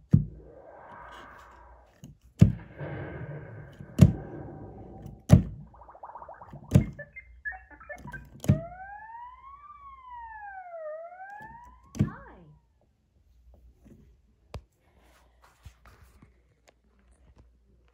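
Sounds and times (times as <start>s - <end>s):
siren-like gliding tone: 0.3s - 2.0s, 2.6s - 12.6s
digital piano noisy hits: 2.5s - 9.0s.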